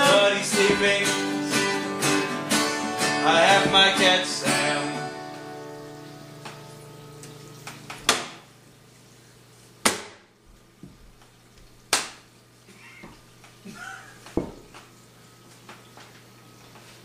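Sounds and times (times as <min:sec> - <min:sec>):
acoustic guitar chord: 0:00.0 - 0:06.9
sharp hand smacks: 0:11.9 - 0:12.2.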